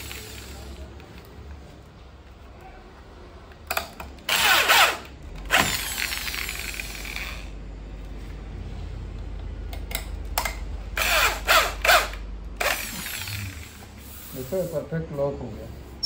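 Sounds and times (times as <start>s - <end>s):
power drill whirring: 4.3s - 7.6s, 11.0s - 13.8s.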